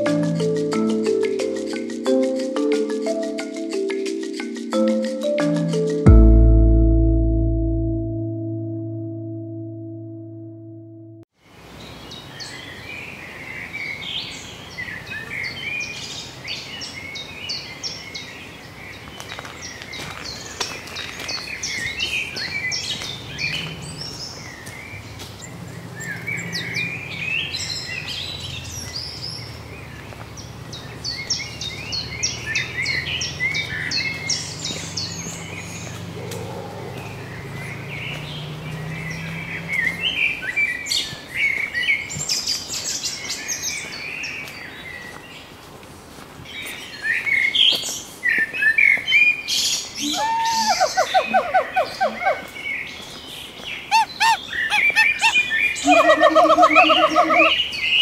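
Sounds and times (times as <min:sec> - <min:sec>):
low steady hum: 0:06.1 - 0:11.3
birds chirping and twittering: 0:11.7 - 0:45.7, 0:46.4 - 0:58.0.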